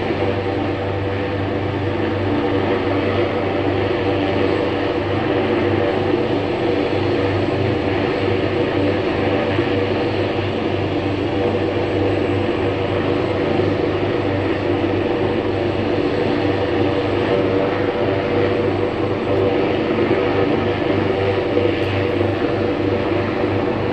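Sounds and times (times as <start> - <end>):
helicopter flying over: 0.0 - 23.9.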